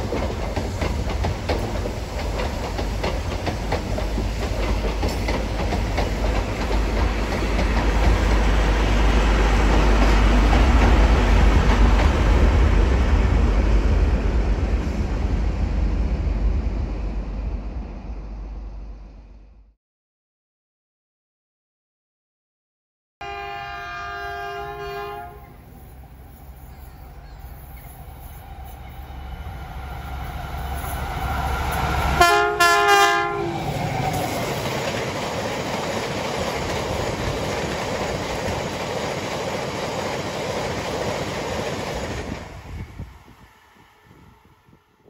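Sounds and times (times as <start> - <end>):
diesel locomotive engine rumble: 0.0 - 19.7, 23.3 - 45.0
train horn: 23.2 - 25.6, 30.8 - 33.7, 43.4 - 45.0.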